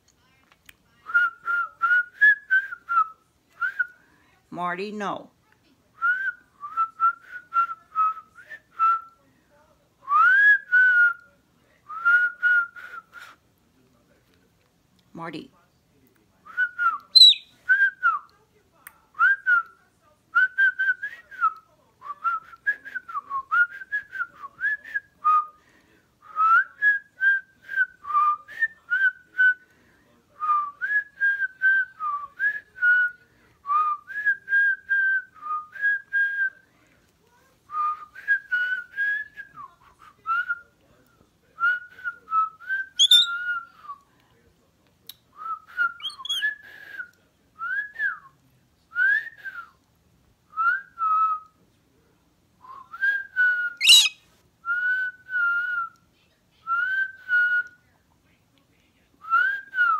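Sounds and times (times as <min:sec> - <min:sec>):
cockatoo whistling: 0:16.8 - 0:17.5, 0:42.7 - 0:43.6, 0:45.7 - 0:47.0, 0:53.0 - 0:55.8
person whistling a tune: 0:43.0 - 0:43.3, 0:45.4 - 0:47.0, 0:53.8 - 0:55.7.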